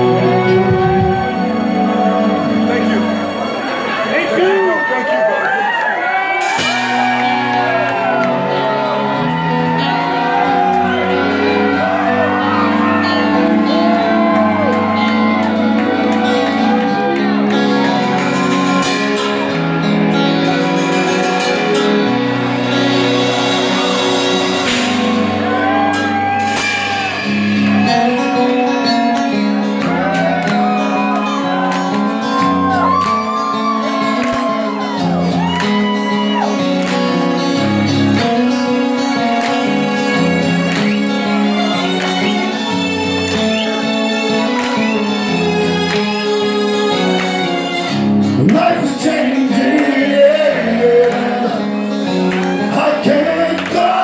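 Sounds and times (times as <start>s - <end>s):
live rock band playing: 0.0s - 54.0s
person singing: 48.3s - 54.0s.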